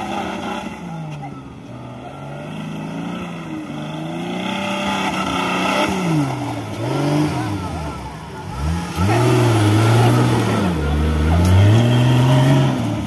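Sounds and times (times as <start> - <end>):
buggy engine revving: 0.0 - 13.0.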